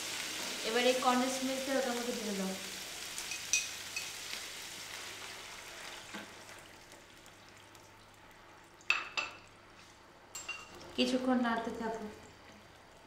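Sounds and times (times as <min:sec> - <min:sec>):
food sizzling in a frying pan: 0:00.0 - 0:07.0.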